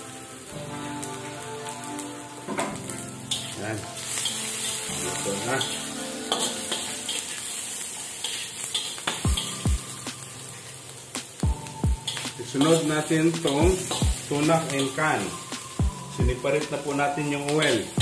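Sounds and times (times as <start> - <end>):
vegetables sizzling in a wok: 0.0 - 18.0
metal spatula scraping a pan: 2.5 - 9.7, 12.0 - 15.6.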